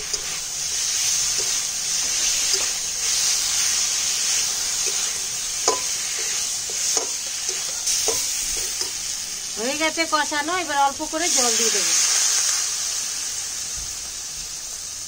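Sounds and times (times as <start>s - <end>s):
curry sizzling in a pan: 0.0s - 15.0s
spatula clinking against pan: 4.8s - 9.0s.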